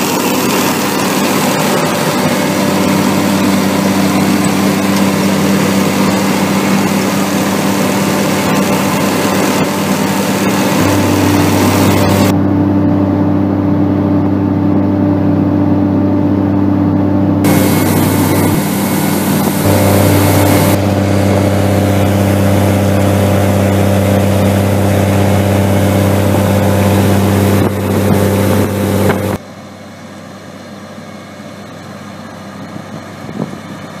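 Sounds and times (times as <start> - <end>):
harvester engine drone: 0.0 - 34.0.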